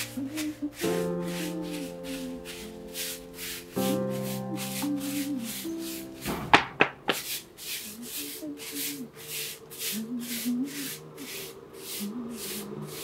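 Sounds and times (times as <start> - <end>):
swishing strokes: 0.0 - 6.5, 7.1 - 12.7
soft background music: 0.0 - 7.8.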